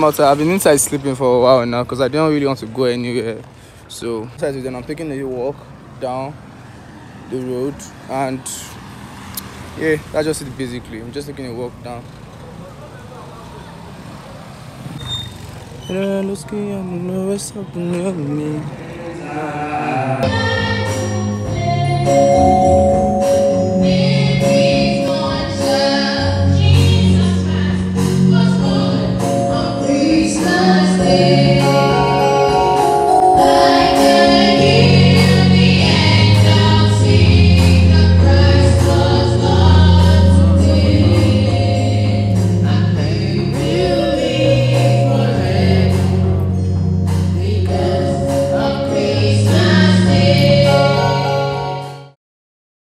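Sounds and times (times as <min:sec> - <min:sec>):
choir singing: 0:18.9 - 0:46.6, 0:47.3 - 0:52.2
bass line: 0:20.2 - 0:51.4
steady beat: 0:29.2 - 0:50.0.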